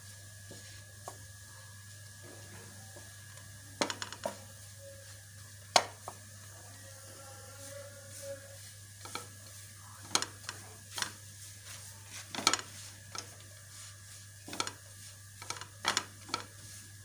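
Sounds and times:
wooden spatula scraping a frying pan: 8.1s - 17.0s.

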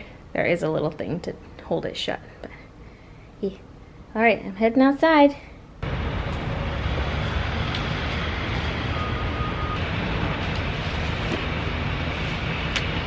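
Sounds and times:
low rumble: 5.8s - 13.0s.

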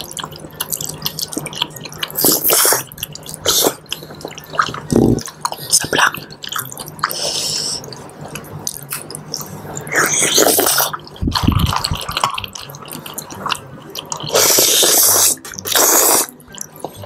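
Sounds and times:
wet chewing and sucking: 0.0s - 17.0s
noodle slurp: 9.4s - 17.0s.

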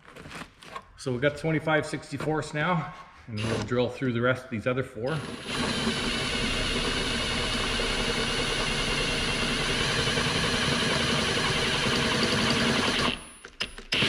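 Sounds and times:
cordless drill cutting sheet metal: 3.3s - 3.9s, 5.1s - 13.3s.

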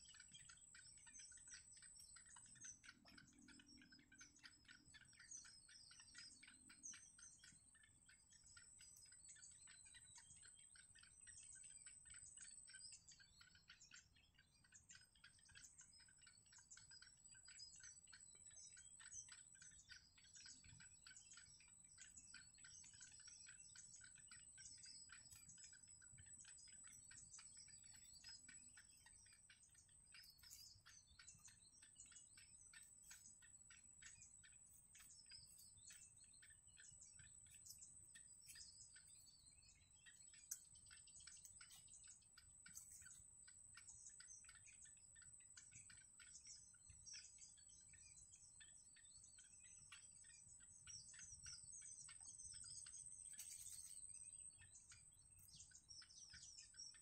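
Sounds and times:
thin steady high tone: 0.0s - 57.0s.

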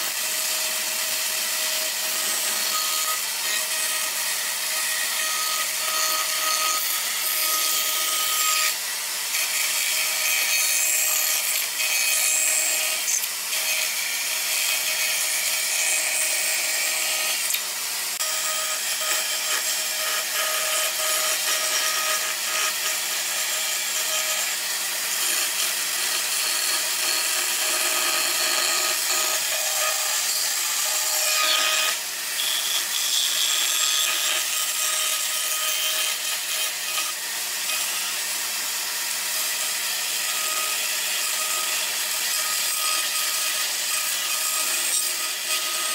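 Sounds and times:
band saw cutting wood: 0.0s - 45.9s.

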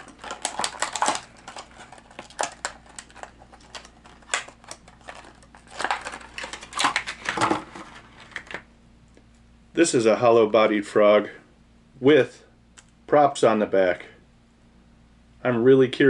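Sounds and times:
stiff plastic crinkling and snapping: 0.0s - 8.7s.

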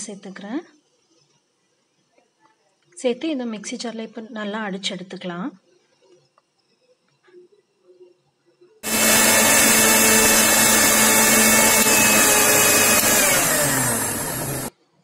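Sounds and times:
mixer grinder running: 8.8s - 14.7s.

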